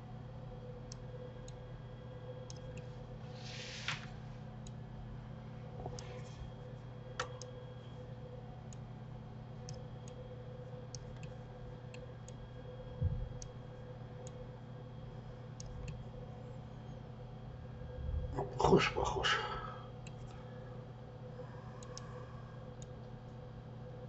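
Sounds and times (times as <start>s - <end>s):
steady electrical hum: 0.0s - 24.0s
computer mouse clicks: 2.5s - 2.8s, 7.2s - 7.6s, 15.6s - 16.0s, 21.8s - 22.1s.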